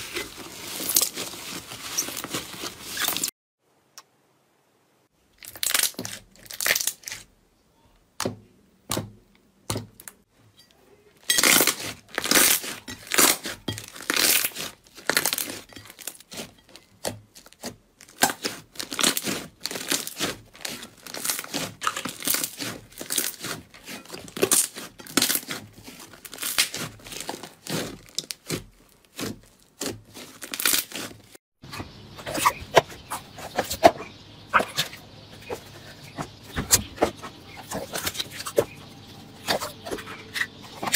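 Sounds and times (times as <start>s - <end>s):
slime squishing and popping: 17.0s - 31.1s.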